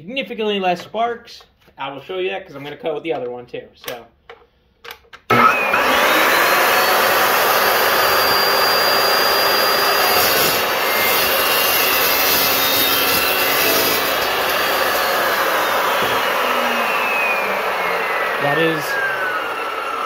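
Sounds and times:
chop saw cutting metal tube: 5.3 - 19.9.

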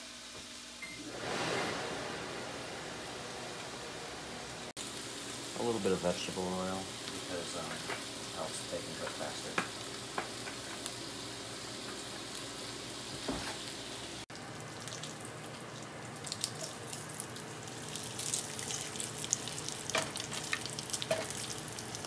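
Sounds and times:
bacon sizzling in a skillet: 4.8 - 22.0.

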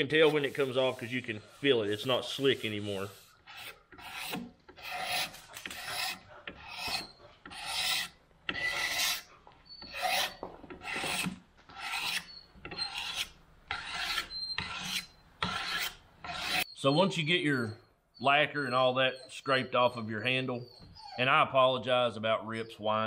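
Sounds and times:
knife blade scraping wood: 0.0 - 16.7.

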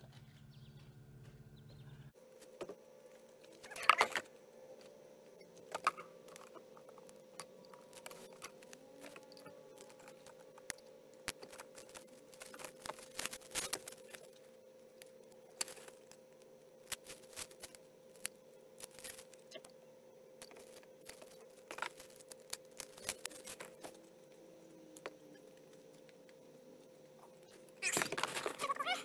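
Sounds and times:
faint steady hum: 0.0 - 29.0.

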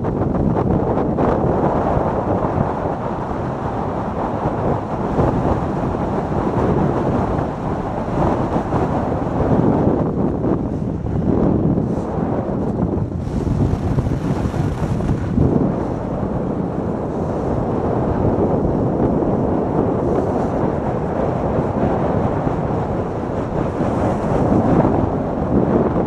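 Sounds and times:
luge runners rumbling on snow: 0.0 - 26.0
wind rushing over microphone: 0.0 - 26.0.

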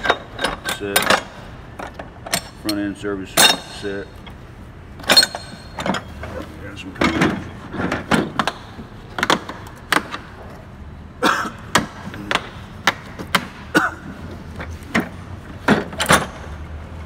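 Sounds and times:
tools clattering in toolbox: 0.0 - 4.0, 5.0 - 6.4, 14.0 - 16.6.

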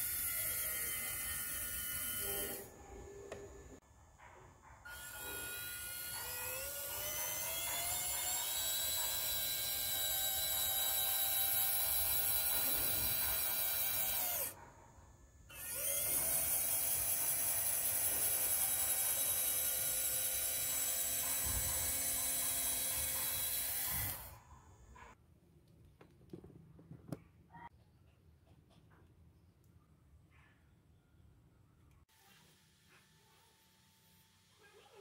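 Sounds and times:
small electric motor whining: 0.0 - 3.5, 4.9 - 14.6, 15.5 - 25.2.

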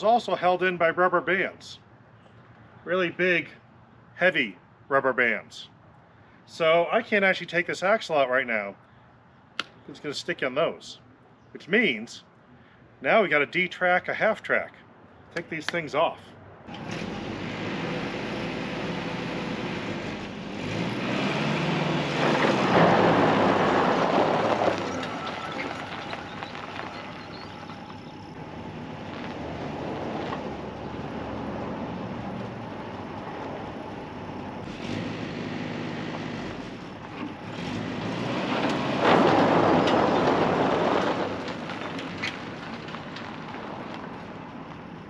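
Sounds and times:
jeep engine surging: 16.7 - 45.0
steel track dragging across ground: 19.5 - 30.5.

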